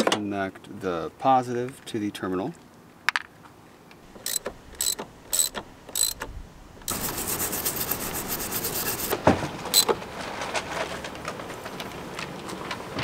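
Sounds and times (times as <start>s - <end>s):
ratchet wrench clicking: 4.2s - 6.3s.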